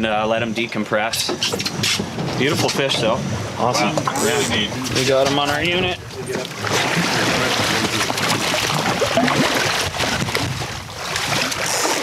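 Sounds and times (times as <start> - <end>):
water splashing against boat hull: 1.3 - 12.0.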